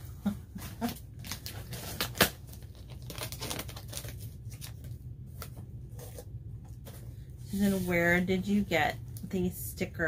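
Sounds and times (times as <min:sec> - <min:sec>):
paper crinkling: 0:00.5 - 0:07.0
paper and tape tearing: 0:00.8 - 0:04.1.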